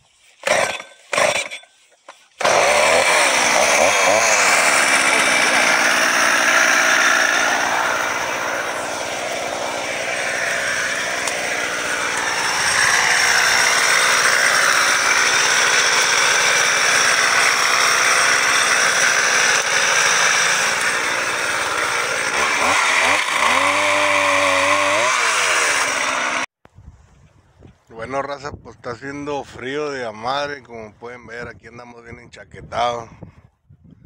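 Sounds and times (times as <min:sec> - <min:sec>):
chainsaw running: 0:00.4 - 0:01.6, 0:02.4 - 0:26.5.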